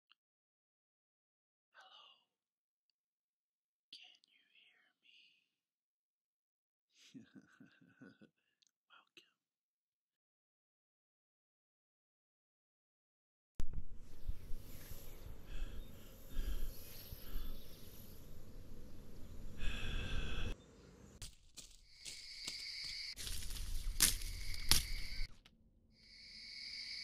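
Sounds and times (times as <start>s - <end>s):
insects chirring: 14.6s - 20.5s, 21.7s - 25.3s, 26.0s - 27.0s.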